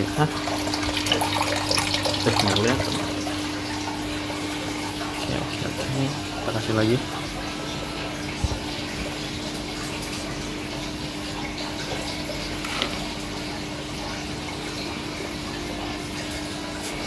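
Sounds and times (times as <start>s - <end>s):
aquarium pump hum: 0.0s - 17.0s.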